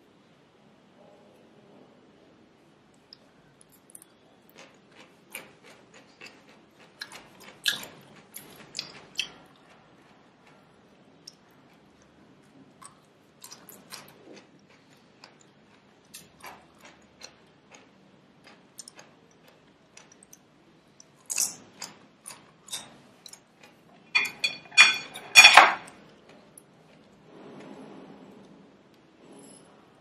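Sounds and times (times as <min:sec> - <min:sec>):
person chewing crisp vegetables: 0:03.1 - 0:24.0
chopsticks and spoon clinking on plate: 0:24.1 - 0:26.0.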